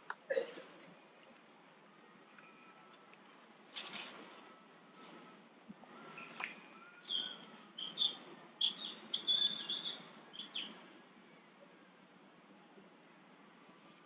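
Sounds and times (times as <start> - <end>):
high-pitched animal chirps and squeaks: 6.9 - 10.7.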